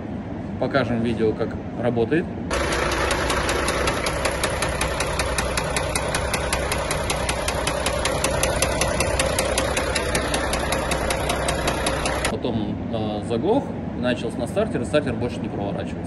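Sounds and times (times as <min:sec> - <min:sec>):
sharp engine knock: 0:02.5 - 0:12.3
diesel engine idling: 0:02.5 - 0:12.4.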